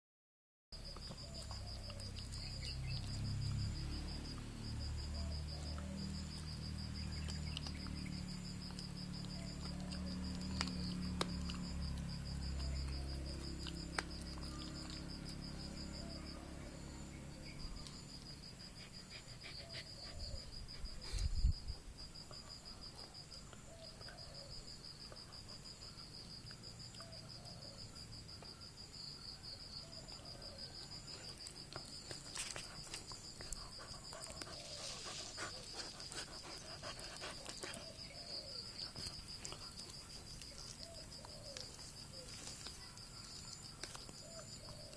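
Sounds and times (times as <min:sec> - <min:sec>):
insect trilling: 0:28.6 - 0:44.9
dog growling while chewing: 0:32.2 - 0:40.4.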